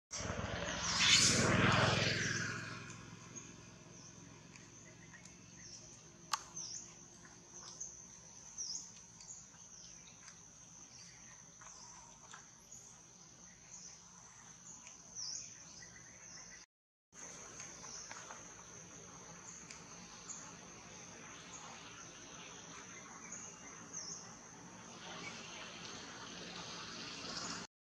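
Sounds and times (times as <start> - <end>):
loud rushing whoosh: 0.2 - 3.3
insect chirps: 3.8 - 16.6, 17.2 - 27.2
sharp click: 6.3 - 6.7.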